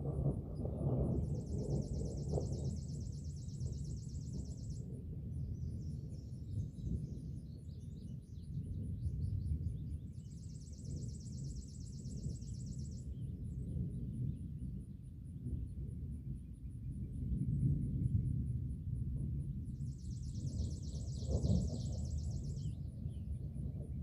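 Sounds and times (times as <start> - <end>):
distant thunder rumbling: 0.0 - 7.5, 8.5 - 24.0
bird chirps: 1.3 - 13.4, 19.8 - 23.9.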